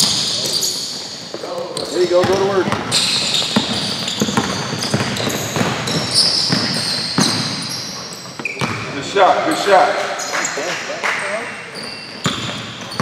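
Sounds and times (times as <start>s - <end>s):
sneakers squeaking: 0.0s - 13.0s
basketball bouncing on wooden floor: 2.1s - 8.9s, 11.8s - 13.0s.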